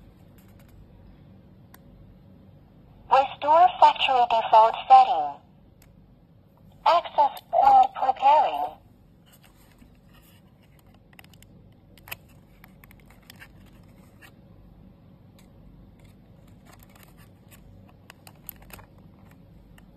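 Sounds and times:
plastic camera clicks and scrapes: 9.3 - 14.4, 15.4 - 19.4.

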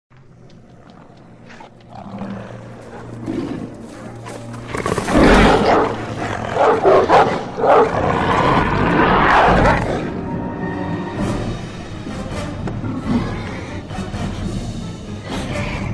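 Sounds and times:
dark film score drone: 0.1 - 15.9
monstrous dogs snarling and growling: 0.6 - 10.3, 12.6 - 14.2.

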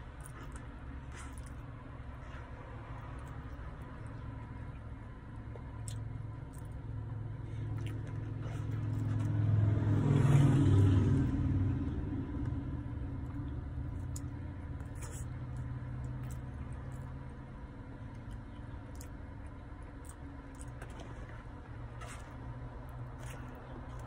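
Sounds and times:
passing motor vehicle rumble: 0.0 - 24.0.

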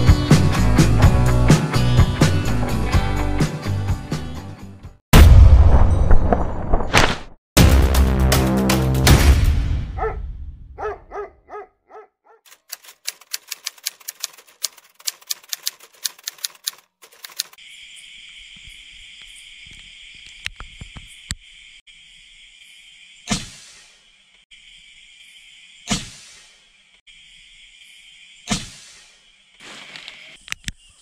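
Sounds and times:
scattered clicks: 12.5 - 17.6
typewriter-like clicking: 12.5 - 17.6
night insects chirring: 17.6 - 23.3, 27.1 - 28.5.

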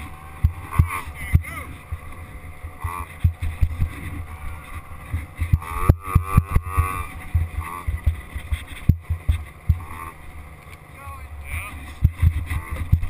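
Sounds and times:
wind buffeting microphone: 0.0 - 9.9, 11.5 - 13.0
dirt bike engine revving: 0.0 - 13.0
low knocks from bumps: 5.1 - 9.9, 11.9 - 13.0.

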